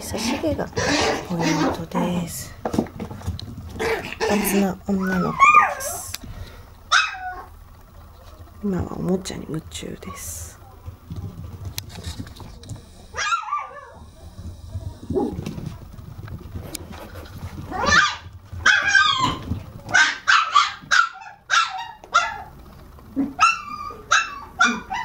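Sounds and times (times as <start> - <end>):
puppies yipping: 3.7 - 6.1, 6.9 - 7.6, 13.1 - 14.2, 17.6 - 22.6, 23.2 - 25.0.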